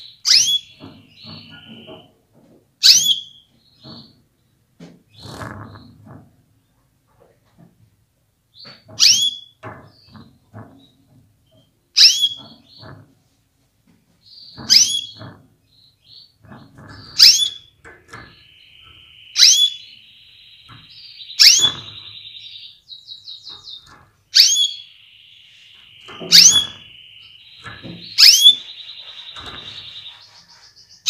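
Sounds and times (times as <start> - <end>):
canary calling: 0.0 - 2.1, 2.8 - 4.1, 8.6 - 9.6, 12.0 - 12.9, 14.3 - 15.3, 16.0 - 31.0.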